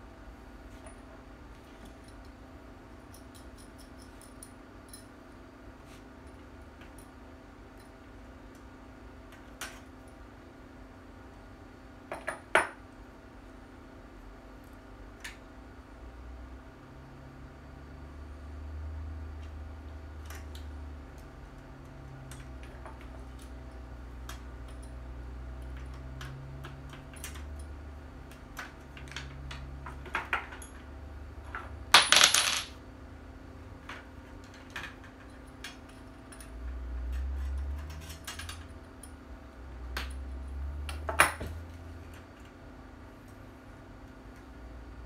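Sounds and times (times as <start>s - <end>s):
rifle parts clicking and clinking: 32.0s - 32.7s.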